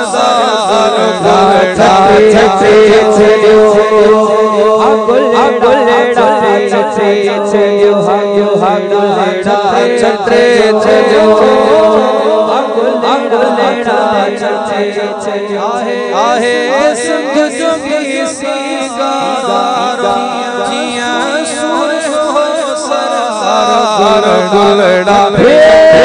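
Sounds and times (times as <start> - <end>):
steady held drone: 0.0 - 24.4
several voices chanting: 25.2 - 26.0.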